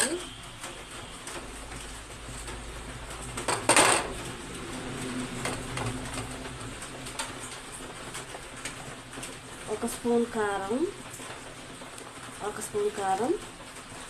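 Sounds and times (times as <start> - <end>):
metal kitchen utensils clinking: 3.4 - 4.2.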